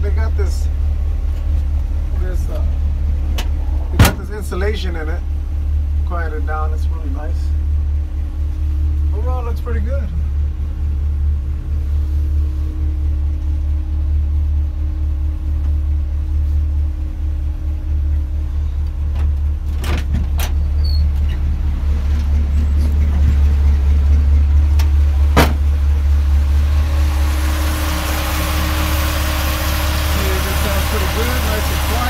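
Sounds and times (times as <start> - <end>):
car engine idling: 0.0 - 32.0
sharp knock: 25.4 - 25.7.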